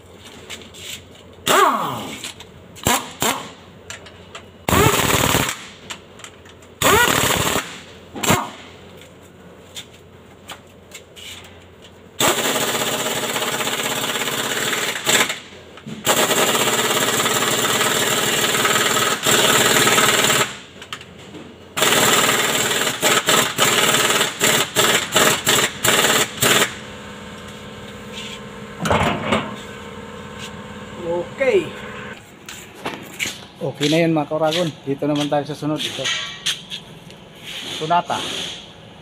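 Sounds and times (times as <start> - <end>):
pneumatic impact wrench: 1.4 - 3.6, 4.7 - 5.8, 6.8 - 8.8, 12.2 - 20.8, 21.8 - 30.6, 37.4 - 38.7.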